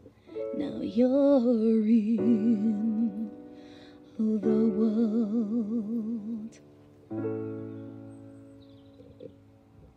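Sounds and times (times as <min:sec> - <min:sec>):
woman singing with vibrato: 0:00.4 - 0:03.4, 0:04.1 - 0:06.6.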